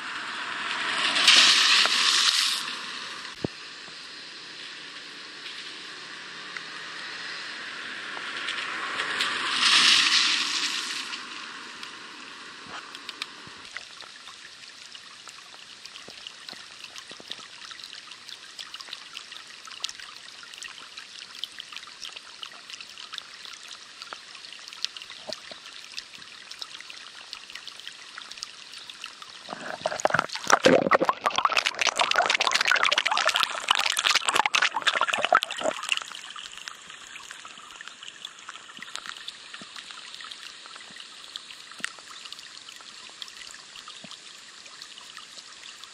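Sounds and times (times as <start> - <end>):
rain hiss: 0.0 - 13.8
running water: 0.0 - 45.9
water splashing from manhole: 0.0 - 45.9.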